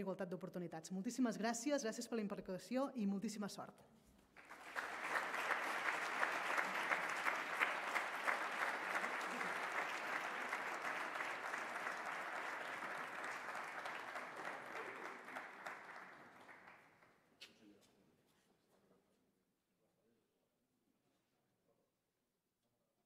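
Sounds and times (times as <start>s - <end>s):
audience applauding: 4.4s - 17.2s.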